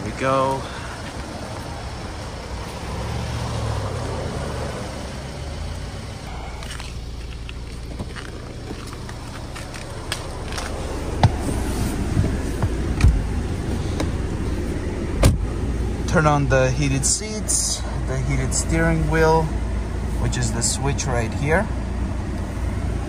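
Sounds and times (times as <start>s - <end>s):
car engine idling: 0.0s - 23.0s
car door opening clicks: 7.9s - 11.4s, 12.1s - 13.3s, 15.2s - 15.5s.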